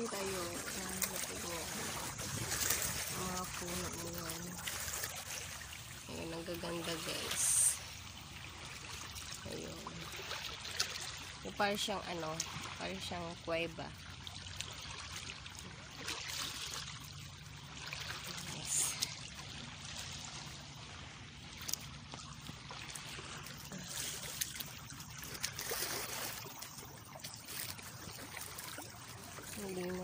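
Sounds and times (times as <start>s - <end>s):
seawater washing over rocks: 0.0s - 7.9s, 14.5s - 20.7s, 21.4s - 30.0s.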